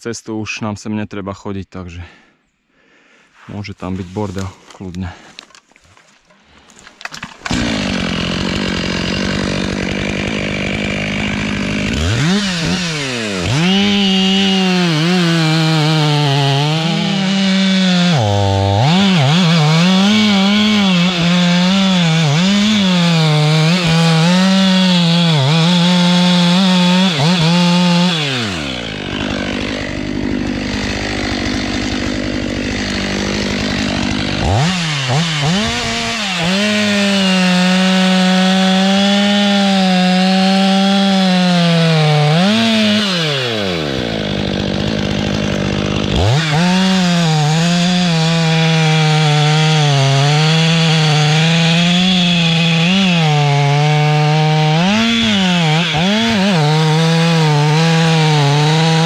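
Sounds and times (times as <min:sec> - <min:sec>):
chainsaw cutting wood: 0:05.2 - 0:59.0.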